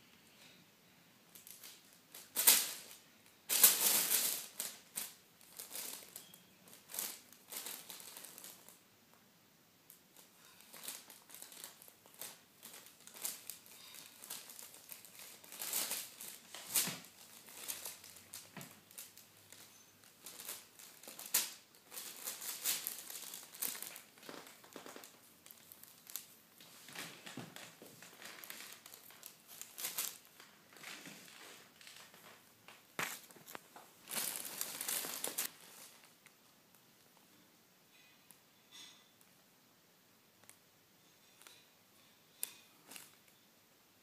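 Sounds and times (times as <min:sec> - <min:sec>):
wrapping paper crinkling: 0:01.3 - 0:08.8, 0:09.9 - 0:36.3.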